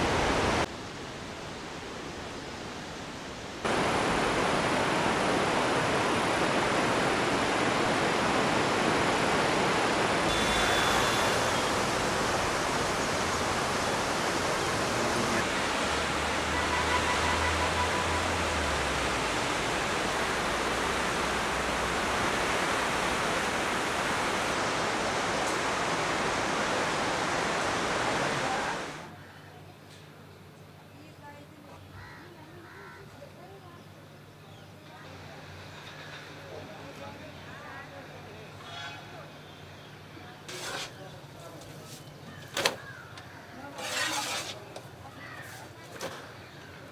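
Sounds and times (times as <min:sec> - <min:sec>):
river rushing in flood: 0:00.0 - 0:29.1.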